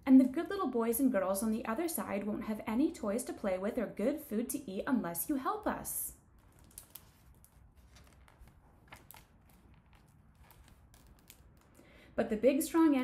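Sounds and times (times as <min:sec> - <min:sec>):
paper rustling: 0:06.3 - 0:11.9
soft clicks of page turning: 0:06.4 - 0:11.8.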